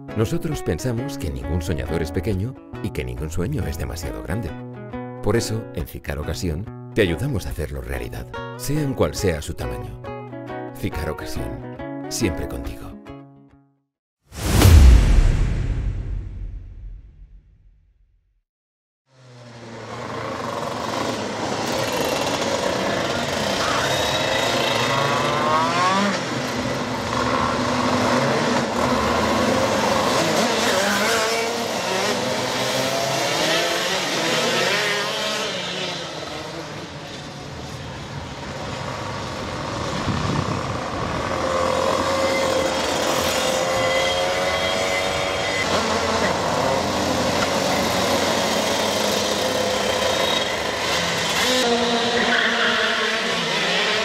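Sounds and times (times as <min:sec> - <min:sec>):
race car engines revving: 0:19.2 - 0:54.0.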